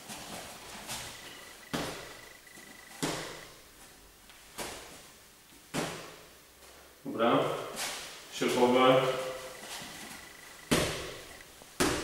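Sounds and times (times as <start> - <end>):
boxing glove punches smacking: 3.0 - 3.4.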